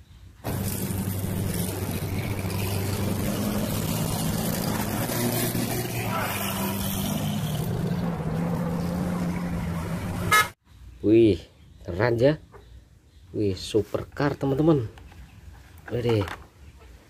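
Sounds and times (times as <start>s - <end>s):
car engines low rumble: 0.4s - 10.6s.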